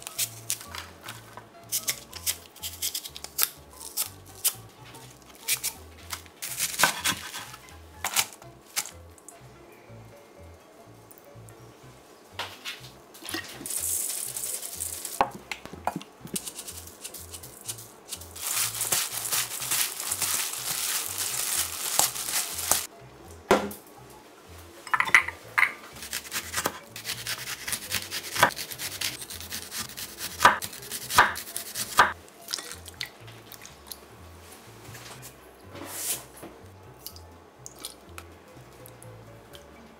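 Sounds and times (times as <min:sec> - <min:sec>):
green onions rustling in bowl: 0:05.4 - 0:08.9, 0:13.2 - 0:15.2, 0:16.4 - 0:22.9.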